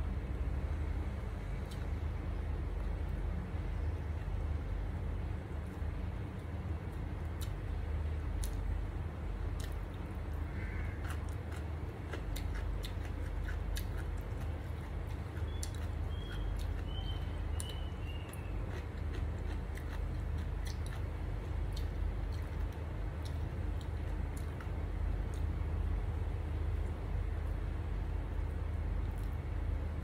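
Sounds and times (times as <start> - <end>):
steady low hum: 0.0 - 30.0
person chewing food: 8.4 - 8.7, 9.5 - 25.5.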